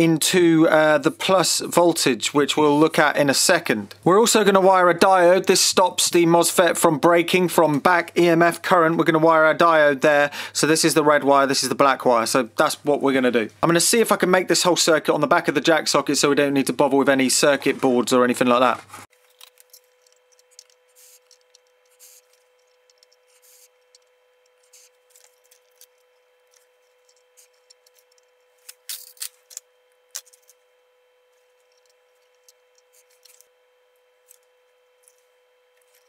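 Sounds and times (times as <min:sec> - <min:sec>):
faint steady whine: 0:00.0 - 0:36.0
clicks of components handled: 0:19.2 - 0:30.6, 0:31.6 - 0:33.6.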